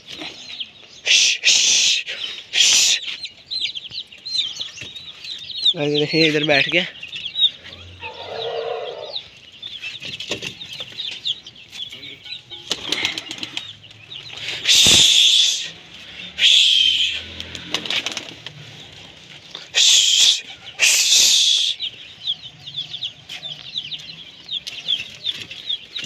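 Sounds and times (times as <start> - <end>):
birds chirping and peeping: 0.0 - 26.0
pigeon wings flapping: 12.7 - 13.7, 17.4 - 18.6.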